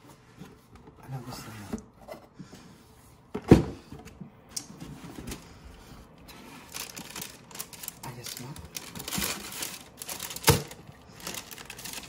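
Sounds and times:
tissue paper rustling: 0:06.3 - 0:12.0.

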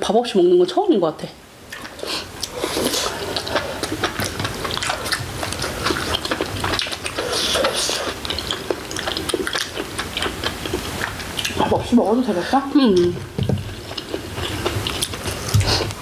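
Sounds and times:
wet chewing: 0:01.7 - 0:16.0.

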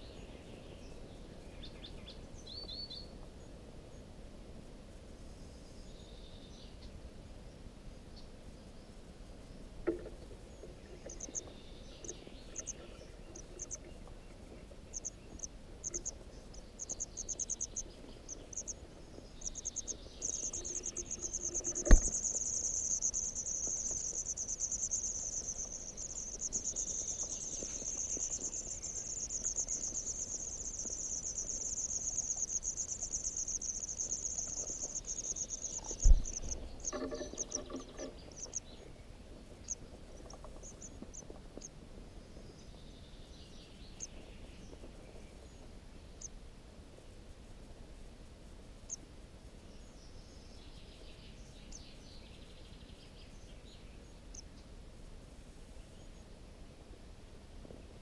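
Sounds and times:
nestlings begging calls: 0:19.4 - 0:38.6.

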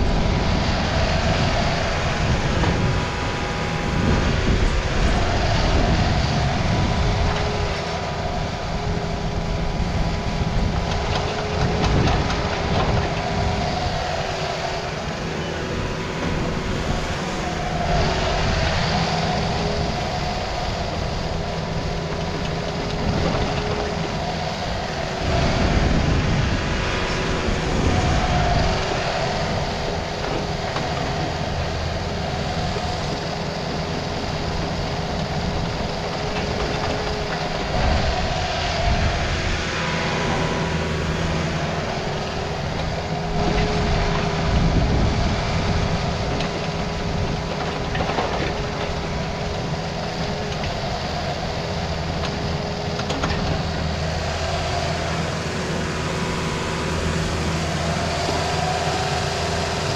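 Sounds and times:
excavator diesel engine under load: 0:00.0 - 0:59.9
hydraulics working: 0:00.0 - 0:59.9.

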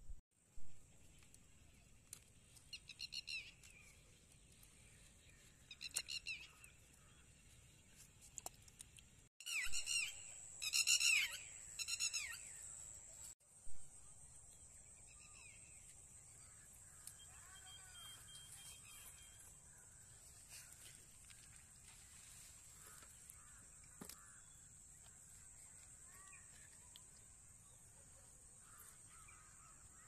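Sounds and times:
bird chirps: 0:02.6 - 0:07.3, 0:09.4 - 0:13.3, 0:14.6 - 0:19.6
faint high-pitched tone: 0:17.1 - 0:19.5.

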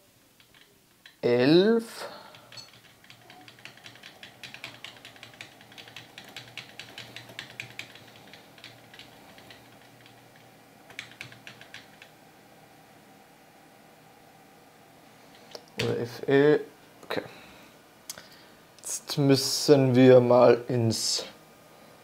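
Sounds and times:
faint steady hum: 0:00.0 - 0:22.0
keyboard key tapped rapidly: 0:02.3 - 0:12.1.

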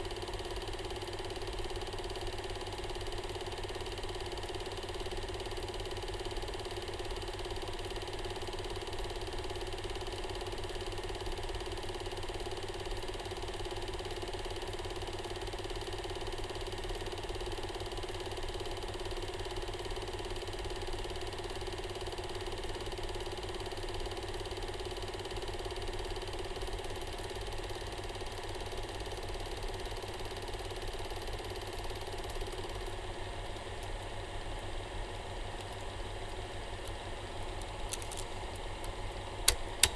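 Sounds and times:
film projector clattering: 0:00.0 - 0:34.1, 0:39.4 - 0:39.9.

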